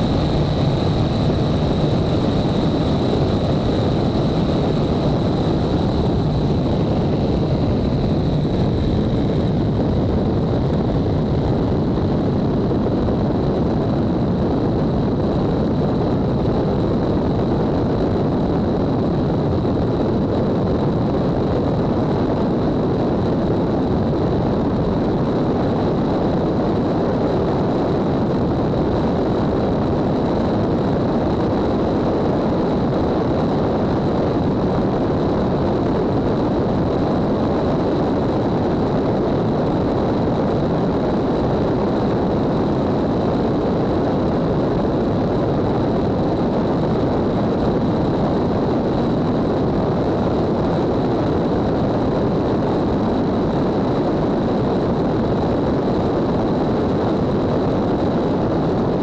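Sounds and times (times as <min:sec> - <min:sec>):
thin high whine: 0:00.0 - 0:14.3
rushing air: 0:00.0 - 0:26.2
propeller airplane engines droning: 0:00.0 - 0:32.6.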